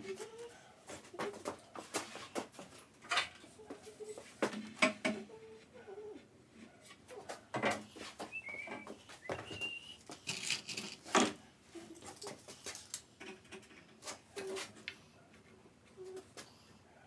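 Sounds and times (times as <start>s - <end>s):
screws rattling in plastic box: 10.2s - 11.3s.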